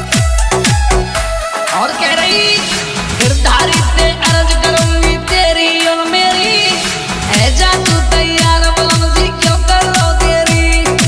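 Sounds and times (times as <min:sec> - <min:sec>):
devotional song over dance beat: 0:00.0 - 0:11.0
deep kick drum: 0:03.2 - 0:05.5, 0:07.3 - 0:11.0.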